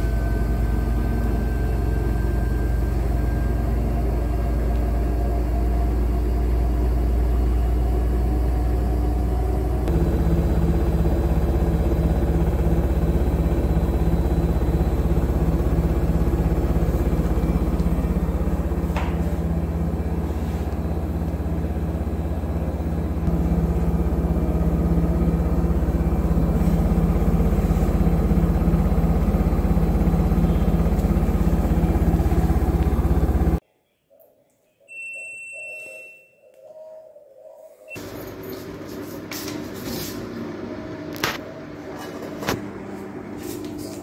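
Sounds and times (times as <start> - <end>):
washing machine drum spinning: 0.0 - 33.6
brief high tone: 34.8 - 36.5.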